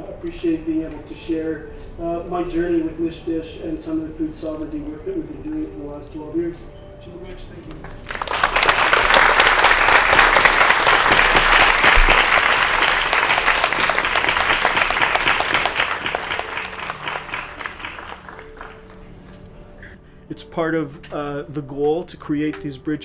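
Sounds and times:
audience applauding: 8.0 - 19.4.

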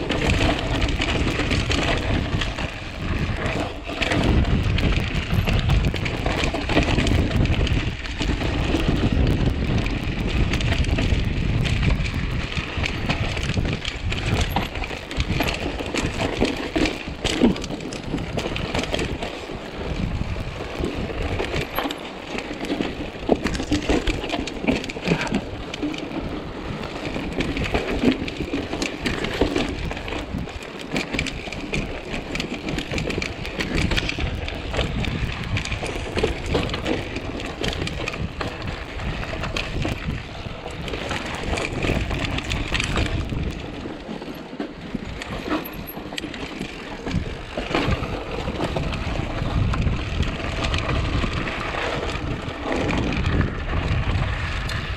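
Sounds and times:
bike rattling and knocking: 0.0 - 54.9
tyres crunching over stones: 0.0 - 54.9
wind rumble on microphone: 0.0 - 54.9.

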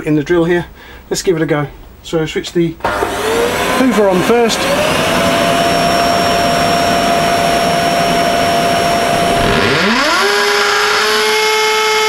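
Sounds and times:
vacuum cleaner running: 2.8 - 12.0
electric drill boring into brick: 2.9 - 12.0.

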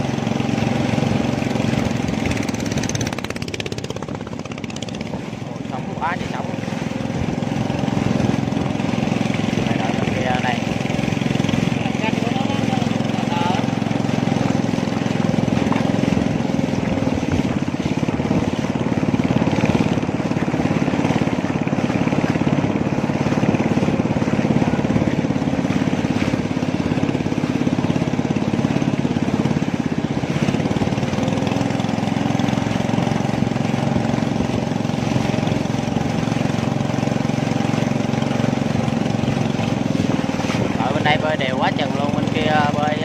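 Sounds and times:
motorboat engine running: 0.0 - 43.0.

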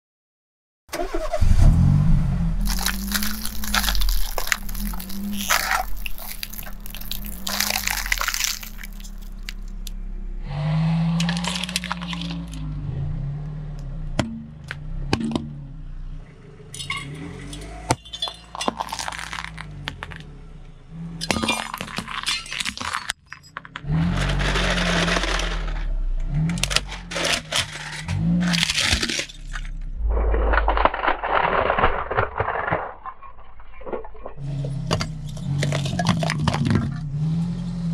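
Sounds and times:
car engine running low: 1.0 - 18.0, 18.7 - 22.3, 23.6 - 31.2, 33.4 - 37.9
tyre crushing plastic objects: 2.6 - 10.0, 11.2 - 12.6, 17.9 - 20.2, 21.2 - 37.1.

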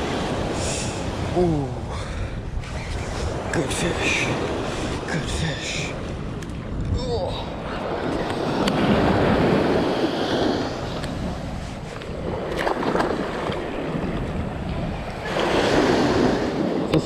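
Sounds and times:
surf waves breaking on sand: 0.0 - 17.0
wind rumbling on microphone: 0.0 - 17.0.

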